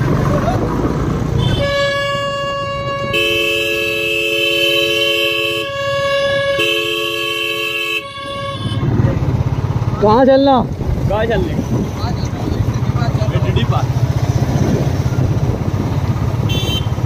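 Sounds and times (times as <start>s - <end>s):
vehicle horn steady note: 1.4s - 9.3s, 16.4s - 17.0s
lower-pitched vehicle horn: 1.4s - 9.4s, 16.4s - 17.0s.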